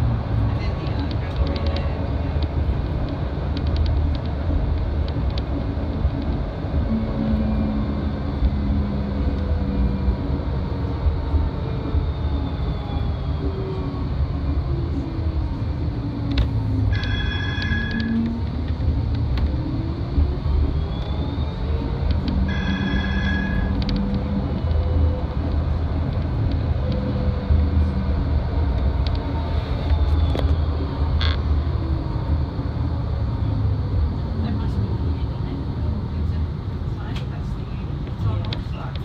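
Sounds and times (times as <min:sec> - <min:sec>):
tram wheels rumbling on rail: 0:00.0 - 0:39.0
traction motor whine: 0:06.0 - 0:34.4.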